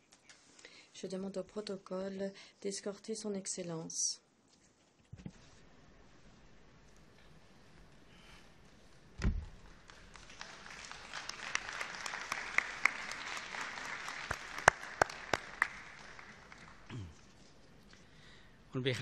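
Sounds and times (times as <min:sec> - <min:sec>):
dull thump: 0:09.2 - 0:09.6
loud single claps: 0:09.2 - 0:16.9
audience applause: 0:09.6 - 0:17.1.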